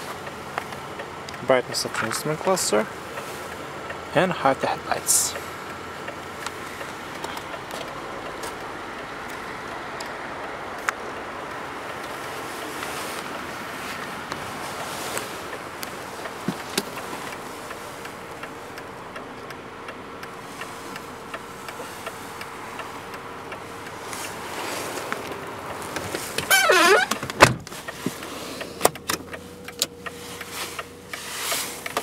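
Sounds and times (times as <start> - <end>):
car door clicks: 14.3 - 17.8, 25.0 - 30.5
car door shutting thump: 26.4 - 27.7
warbling door squeak: 26.5 - 27.2.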